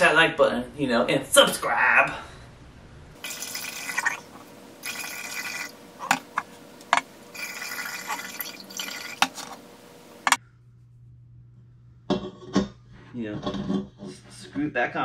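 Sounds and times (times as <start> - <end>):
liquid gurgling into keg: 3.2 - 5.8, 7.3 - 9.3.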